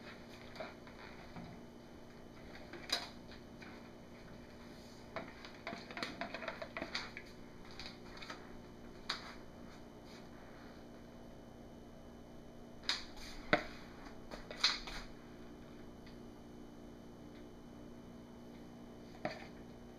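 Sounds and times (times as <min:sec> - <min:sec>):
spoon and plastic jugs clicking: 0:05.2 - 0:08.4.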